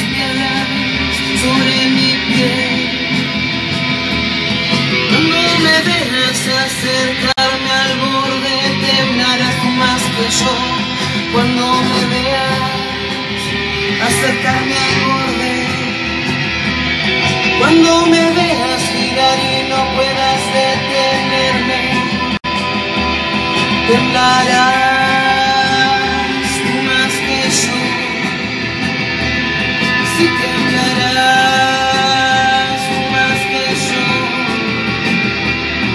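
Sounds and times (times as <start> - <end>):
woman singing wordless lines: 0.0 - 3.1, 5.1 - 16.1, 17.5 - 22.4, 23.8 - 28.5, 30.0 - 34.9
electric bass: 0.0 - 35.9
electric guitar: 0.0 - 35.9.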